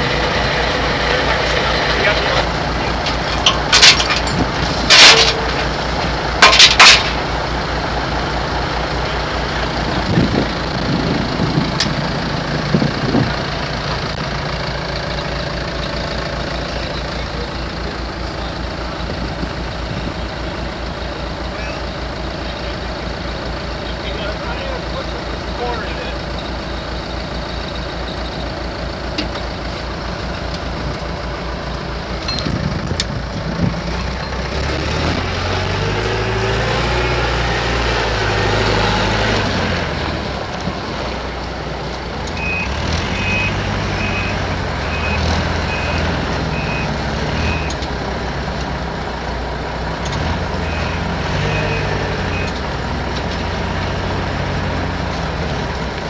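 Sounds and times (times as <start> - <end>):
heavy diesel engines running: 0.0 - 56.0
engine revving: 33.8 - 41.2, 42.3 - 48.6, 49.9 - 56.0
backup alarm beeping: 42.4 - 47.7.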